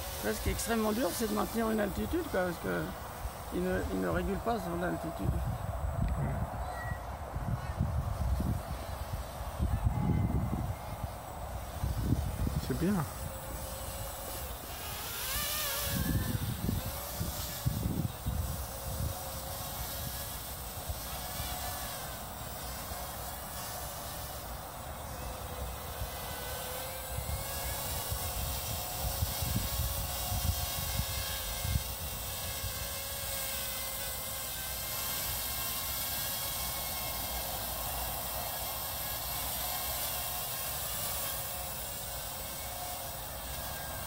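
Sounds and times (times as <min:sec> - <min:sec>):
toy drone buzzing: 0:00.0 - 0:44.0
wind rumble on microphone: 0:03.2 - 0:14.4, 0:15.6 - 0:21.6, 0:27.0 - 0:33.0.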